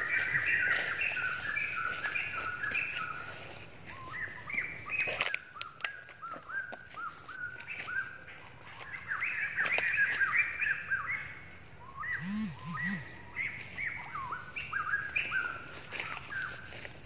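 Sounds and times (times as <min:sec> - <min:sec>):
birds chirping: 0:00.0 - 0:17.0
short low bird calls: 0:12.0 - 0:16.7.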